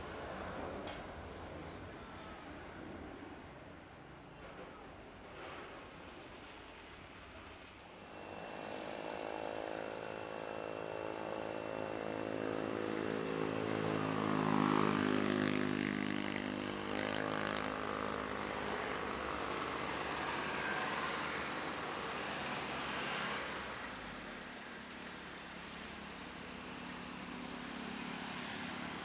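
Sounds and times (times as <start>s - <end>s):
jet engine whine: 5.3s - 29.0s
airliner flying past: 7.9s - 29.0s.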